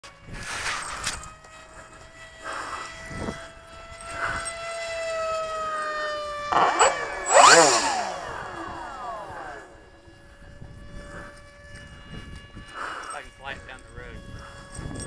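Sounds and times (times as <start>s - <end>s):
model plane motors whining: 0.0s - 15.0s
whine sweeping up and down: 0.0s - 15.0s.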